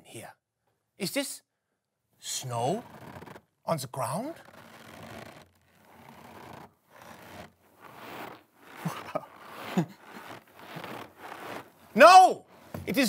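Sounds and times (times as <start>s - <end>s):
bag of cornstarch crunching: 7.0s - 12.0s.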